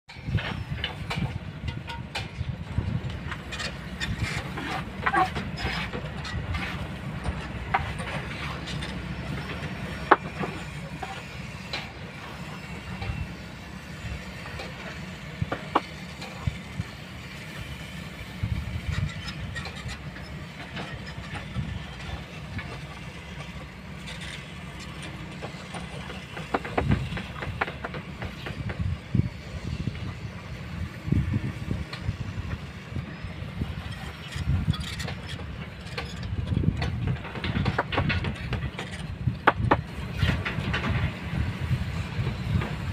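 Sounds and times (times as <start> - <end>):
sharp clanks and knocks: 0.1 - 13.3, 14.4 - 16.6, 18.8 - 29.0, 33.8 - 41.4
excavator engine rumbling: 0.1 - 42.9.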